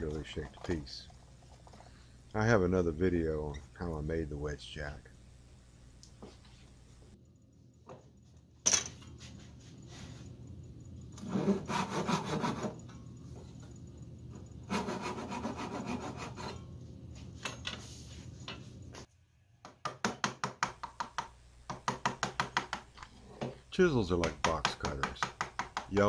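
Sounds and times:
hand saw cutting wood: 11.2 - 12.8, 14.7 - 16.5.

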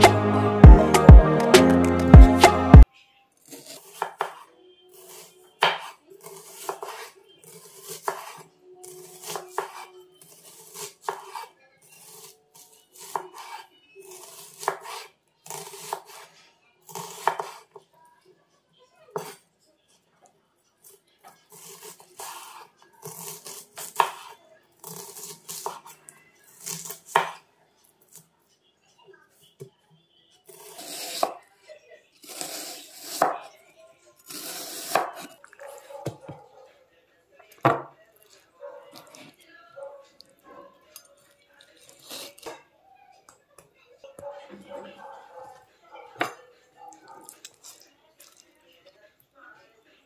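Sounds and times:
knife chopping on wooden board: 3.7 - 4.4, 5.1 - 8.4, 9.0 - 9.8, 10.4 - 11.4, 14.3 - 16.2, 16.9 - 17.6, 26.6 - 27.4, 30.5 - 31.4, 34.3 - 35.3.

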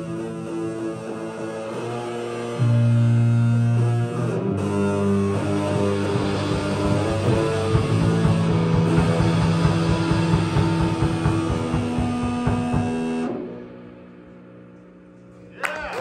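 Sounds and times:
electric guitar sustained notes: 0.0 - 15.2
bass guitar sustained notes: 0.0 - 15.5
drum kit steady beat: 5.6 - 13.5.

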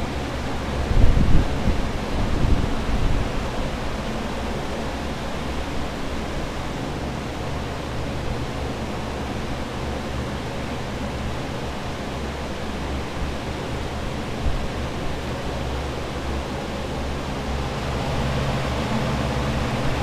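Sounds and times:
drying fans blowing air: 0.0 - 20.0
low rumbling: 14.6 - 20.0.

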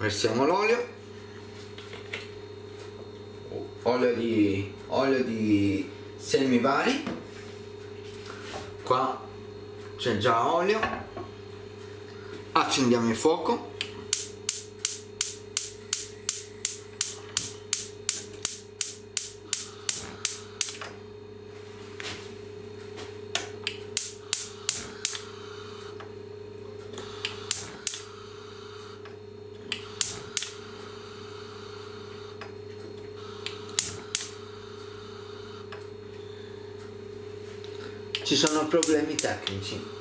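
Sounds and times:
steady low hum: 0.0 - 40.0
gas hob igniter clicking: 13.8 - 21.0, 23.3 - 25.2, 29.6 - 30.6, 33.4 - 34.4, 38.1 - 39.6.

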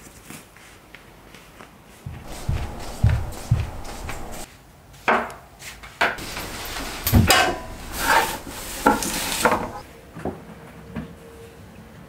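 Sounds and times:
cloth rustling against drum: 2.1 - 4.5, 6.2 - 9.8
knocks and low thud: 2.1 - 4.5.

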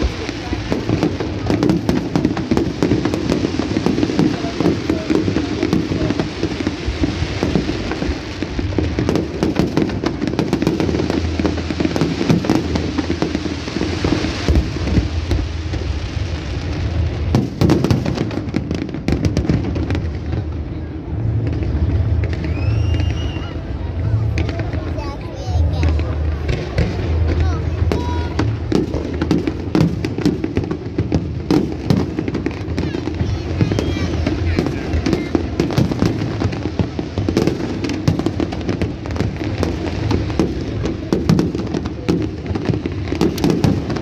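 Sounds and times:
fireworks bursting and crackling: 0.0 - 44.0.

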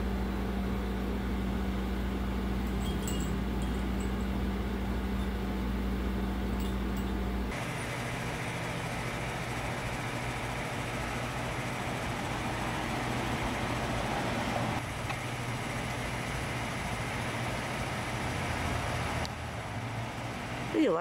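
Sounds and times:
outdoor background noise: 0.0 - 21.0
steady low hum: 0.0 - 21.0
faint high tinkles: 2.6 - 5.5, 6.5 - 7.4.

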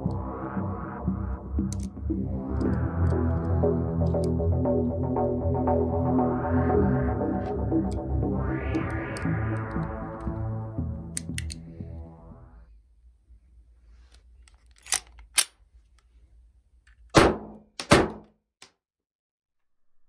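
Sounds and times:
pistol handling clicks: 14.5 - 15.6.

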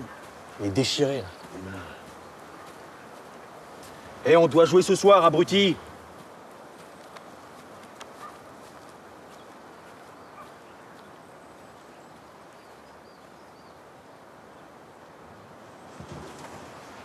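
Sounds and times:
soft outdoor air hiss: 0.0 - 17.0
soft ticks: 7.0 - 8.2
faint bird chirps: 9.2 - 14.8.

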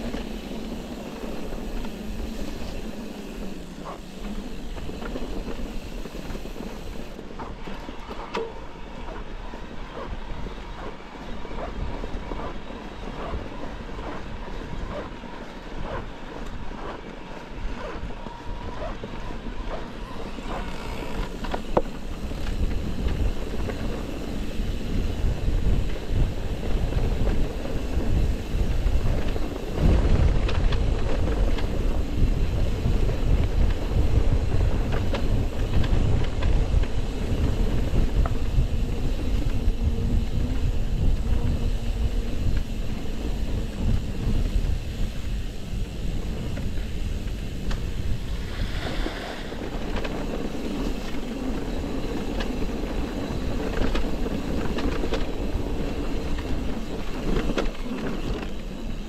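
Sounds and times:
bike tyre rumble: 0.0 - 8.2, 8.8 - 59.0
wind buffeting microphone: 0.0 - 59.0.

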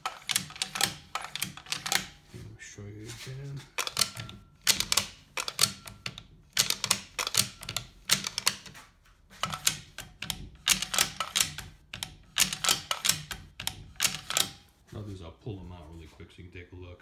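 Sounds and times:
rifle bolts clacking: 0.0 - 2.3, 3.7 - 8.8, 9.4 - 14.6.

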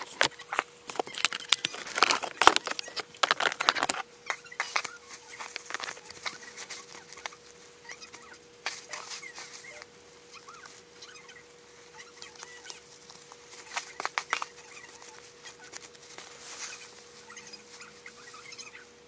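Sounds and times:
paper and plastic bag rustling: 0.0 - 4.0, 4.6 - 10.9, 11.7 - 18.4
scissors snipping paper: 0.0 - 4.0.

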